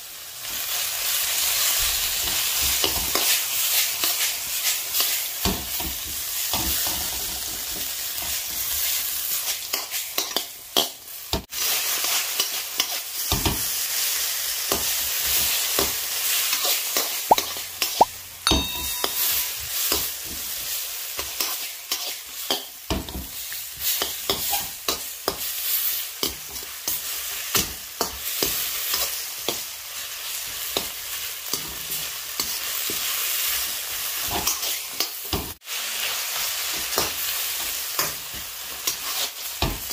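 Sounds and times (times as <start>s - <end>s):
food sizzling in wok: 0.0s - 39.9s
metal clink: 18.5s - 19.4s.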